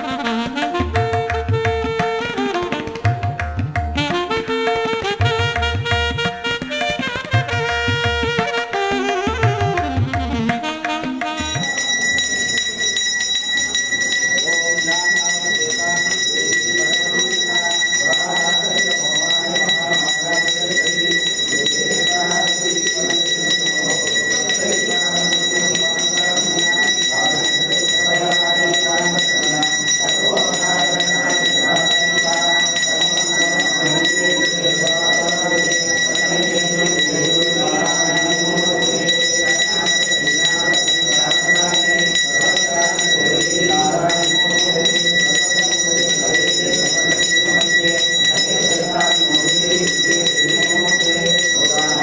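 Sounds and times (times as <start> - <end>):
hand bell ringing: 11.3 - 52.0
voices chanting: 11.4 - 52.0.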